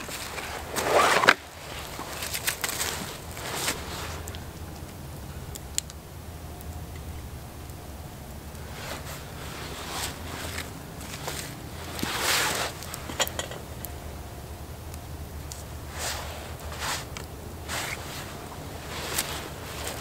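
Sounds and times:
clothing rustling: 0:00.0 - 0:04.4, 0:08.7 - 0:13.5, 0:15.9 - 0:20.0
footsteps in dry leaves: 0:00.0 - 0:04.4, 0:08.7 - 0:13.1, 0:15.9 - 0:20.0.

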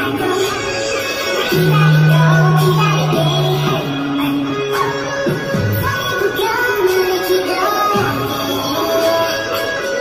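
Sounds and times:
recorded music over loudspeakers: 0:00.0 - 0:10.0
deep held bass note: 0:01.5 - 0:06.0.

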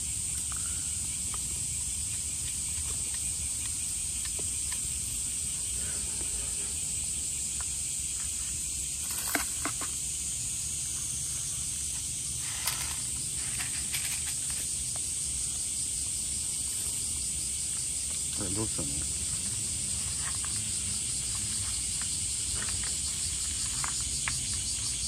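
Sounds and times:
high-pitched insect chorus: 0:00.0 - 0:25.0.

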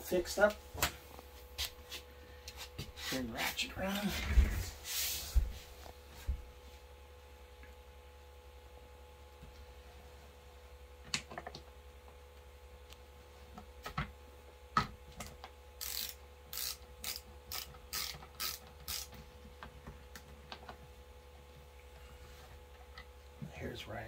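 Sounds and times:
hand ratchet clicking: 0:15.8 - 0:19.2.

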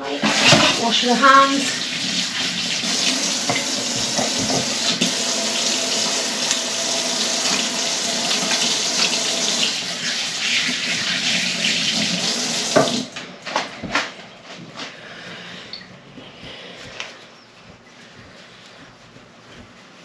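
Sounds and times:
tap running into a sink: 0:02.0 - 0:13.1.

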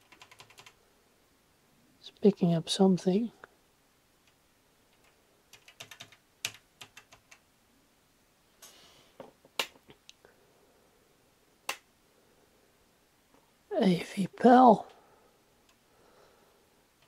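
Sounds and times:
computer keys tapping: 0:00.0 - 0:00.8, 0:04.3 - 0:07.4.

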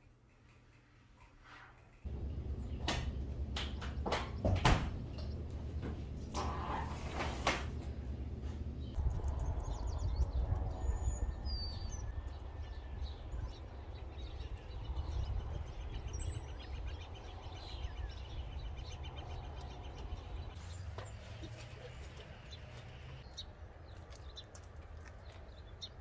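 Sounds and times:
birds chirping: 0:01.8 - 0:26.0
steady low rumble: 0:02.1 - 0:06.7, 0:07.7 - 0:20.6.

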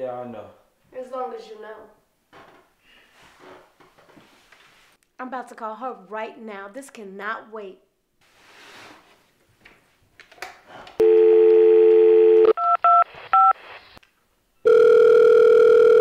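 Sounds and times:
telephone dial tone: 0:11.0 - 0:13.5, 0:14.7 - 0:16.0
telephone ringing tone: 0:11.0 - 0:13.5, 0:14.6 - 0:16.0.

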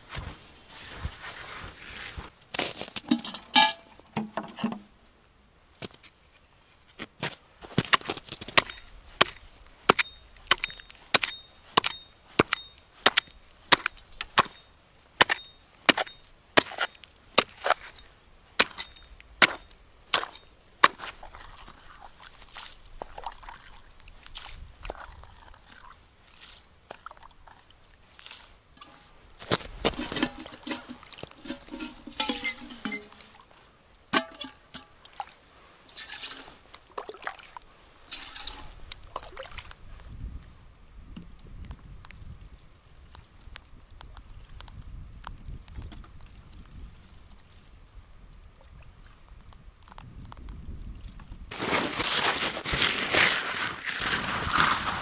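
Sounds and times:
axe chopping ice: 0:07.8 - 0:14.6, 0:15.2 - 0:17.8, 0:18.6 - 0:21.2
soft scattered sounds: 0:28.1 - 0:36.9.

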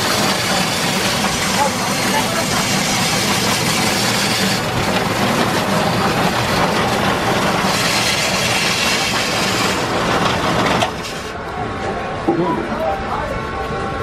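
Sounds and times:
ice-shaving machine grinding ice: 0:00.0 - 0:11.4
low machine hum: 0:00.0 - 0:14.0.

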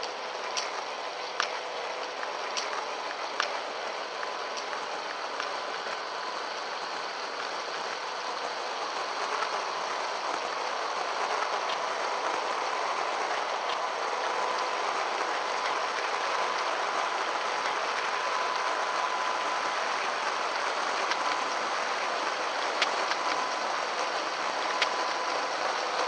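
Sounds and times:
small ticks: 0:00.0 - 0:03.6, 0:10.3 - 0:11.8, 0:13.7 - 0:16.8, 0:20.9 - 0:21.6, 0:22.2 - 0:26.0
electric motor whine: 0:00.0 - 0:26.0
steady hiss: 0:00.0 - 0:26.0.

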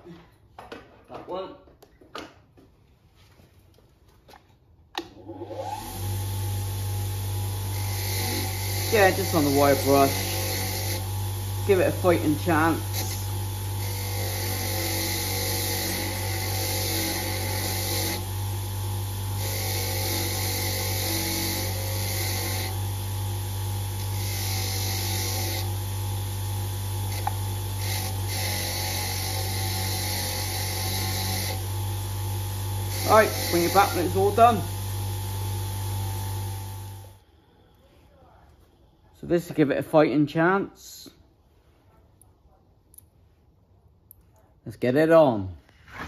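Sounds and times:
grinder motor whine and hum: 0:05.2 - 0:37.2.

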